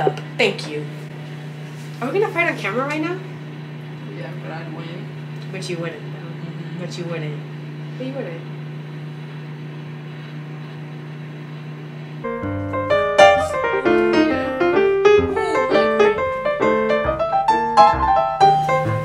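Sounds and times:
low room hum: 0.0 - 19.0
background piano music: 12.2 - 19.0.

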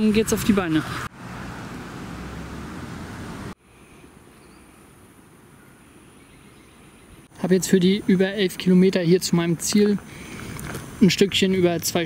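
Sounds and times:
loud rush of outdoor noise: 0.0 - 12.0.

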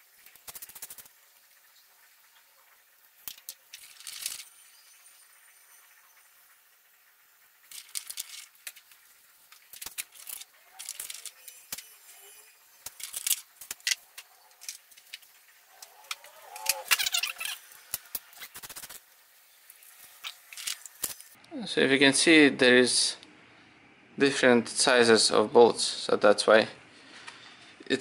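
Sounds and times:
metallic clicks and scrapes of bolts: 12.8 - 19.0.

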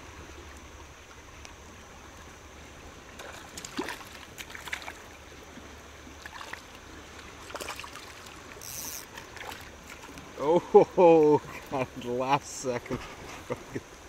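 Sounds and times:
water lapping around kayak: 0.0 - 14.0
fish splashing: 3.1 - 10.4.

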